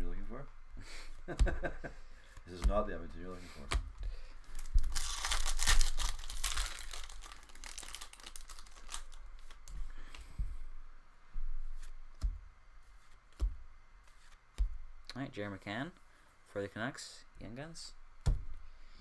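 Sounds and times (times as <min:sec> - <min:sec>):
cards rustling and clicking: 0:03.5 - 0:10.3
card wrapper tearing and crackling: 0:04.4 - 0:09.6.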